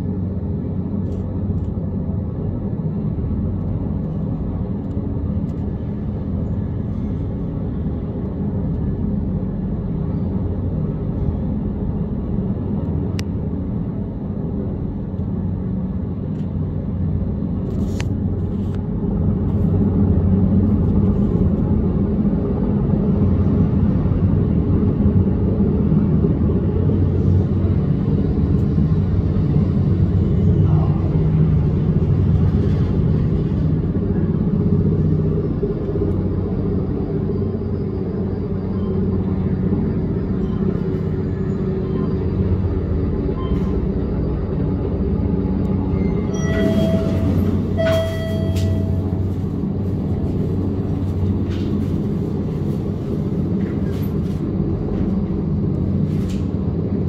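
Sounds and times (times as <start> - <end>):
turbine noise: 0.0 - 57.0
helicopter rotor beat: 18.2 - 56.1.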